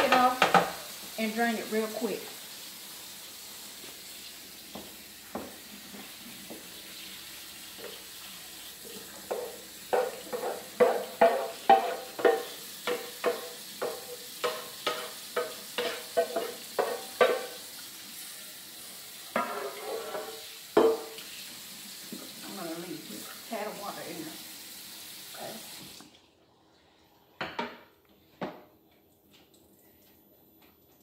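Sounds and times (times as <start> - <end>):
wooden spatula knocking on skillet: 0.0 - 0.8, 4.7 - 5.6, 9.2 - 17.7, 19.4 - 21.2.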